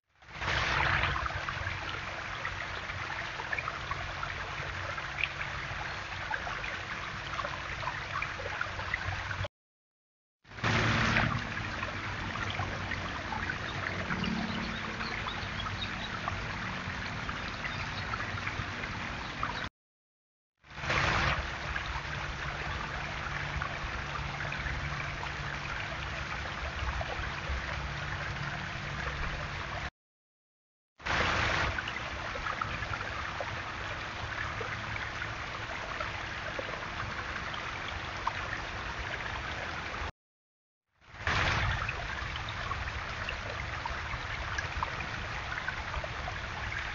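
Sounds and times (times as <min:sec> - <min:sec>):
waterfall splashing over stones: 0:00.2 - 0:07.0, 0:10.5 - 0:19.2, 0:20.7 - 0:25.4, 0:31.0 - 0:40.1, 0:41.1 - 0:46.9.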